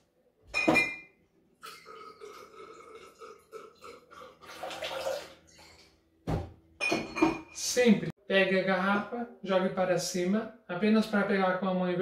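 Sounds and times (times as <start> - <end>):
liquid pouring into metal tin: 1.6 - 5.8.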